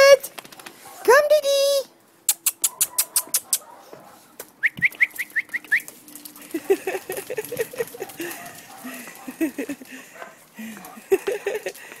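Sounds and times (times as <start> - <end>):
sharp clicks: 2.3 - 3.6.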